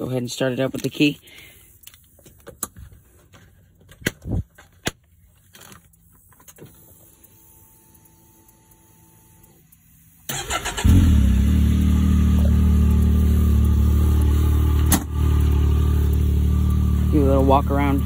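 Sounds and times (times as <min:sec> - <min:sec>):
engine starter cranking: 0:10.3 - 0:16.2
engine idling: 0:10.3 - 0:18.0.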